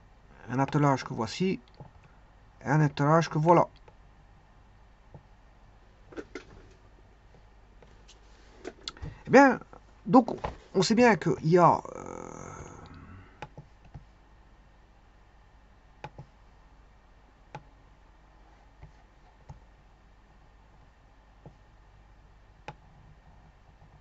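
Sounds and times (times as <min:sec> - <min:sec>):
faint low hum: 0:00.0 - 0:24.0
computer mouse clicking: 0:13.4 - 0:14.1, 0:16.0 - 0:16.3, 0:22.6 - 0:24.0.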